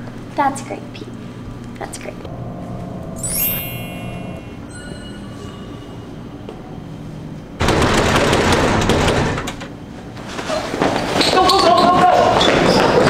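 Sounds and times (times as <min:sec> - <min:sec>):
low hum: 0:02.2 - 0:07.6
metal doors rattling and banging: 0:07.6 - 0:09.7.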